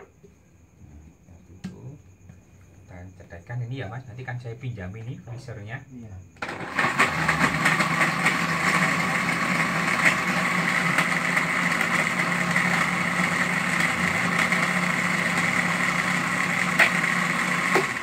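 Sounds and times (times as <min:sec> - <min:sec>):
blender motor running: 0:06.4 - 0:18.0.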